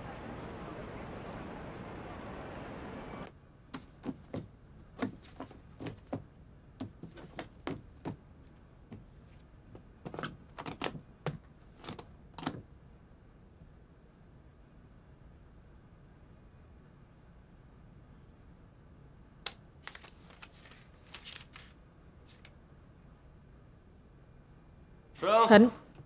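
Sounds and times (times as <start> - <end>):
street noise: 0.0 - 19.8.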